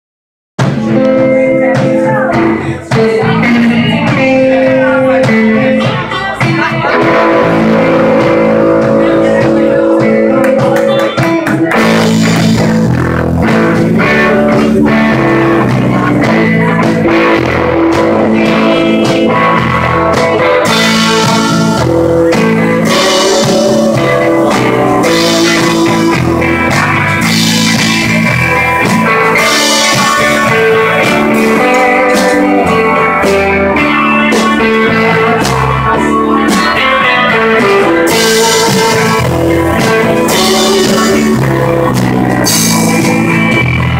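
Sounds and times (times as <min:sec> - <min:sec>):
bass guitar: 0:00.6 - 0:43.9
drum kit: 0:00.6 - 0:43.9
electric guitars: 0:00.6 - 0:43.9
cymbals: 0:36.4 - 0:43.9.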